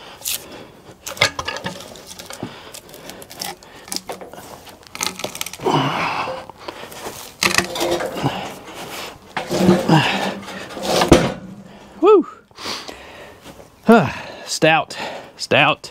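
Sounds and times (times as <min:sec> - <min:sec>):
scraping rustle: 0:06.9 - 0:11.8.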